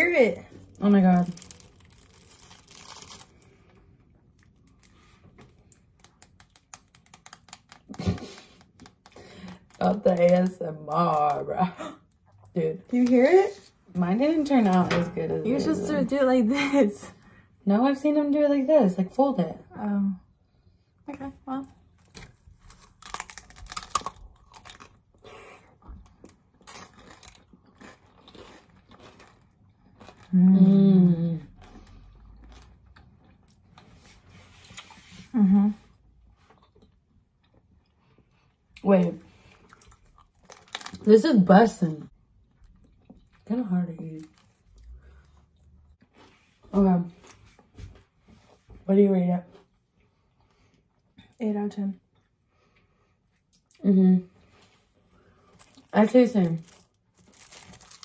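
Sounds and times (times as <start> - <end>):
fruit snacks peeling crackle: 0.6 - 11.5, 22.0 - 25.2, 26.0 - 30.8, 39.7 - 41.1, 55.4 - 58.0
crunchy chewing: 22.0 - 30.4.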